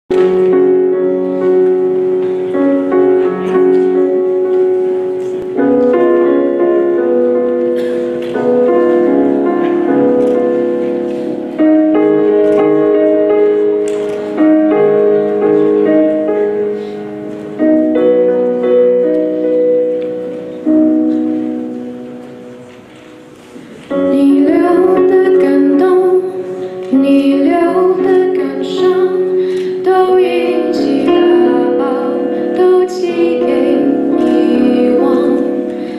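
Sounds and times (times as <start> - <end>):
piano chords ringing: 0.1 - 35.9.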